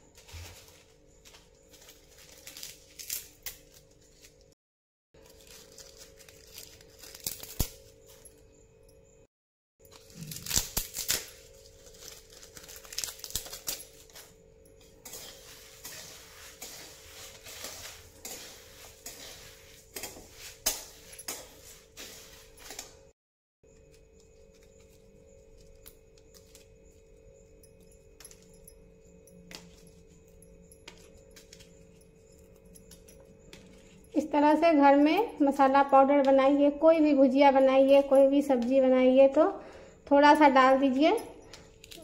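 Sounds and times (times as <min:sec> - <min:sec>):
dry leaves crackling: 0:01.7 - 0:04.3, 0:05.2 - 0:07.8, 0:10.2 - 0:13.8
small clinks: 0:24.6 - 0:36.1, 0:39.9 - 0:42.0.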